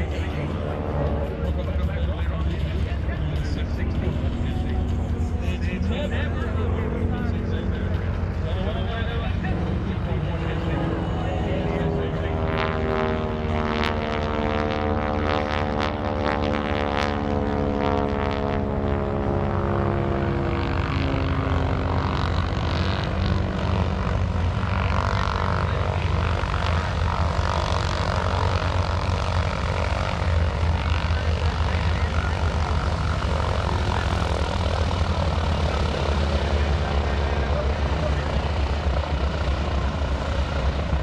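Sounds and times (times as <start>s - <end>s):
propeller plane engine droning: 0.0s - 41.0s.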